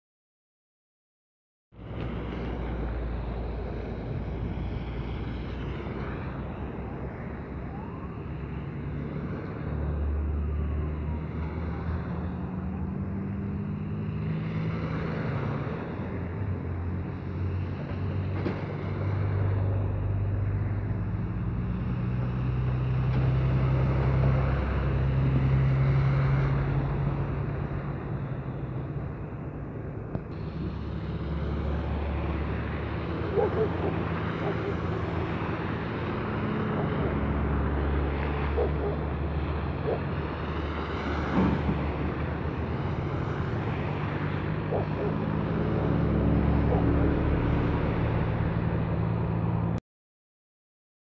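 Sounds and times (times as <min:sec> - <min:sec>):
diesel engine revving: 0:01.8 - 0:49.8
traffic hiss: 0:30.2 - 0:32.8.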